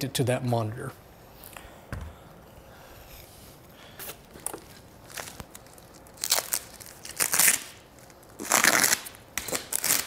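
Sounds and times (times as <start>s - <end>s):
plastic bag crinkling: 4.3s - 9.1s.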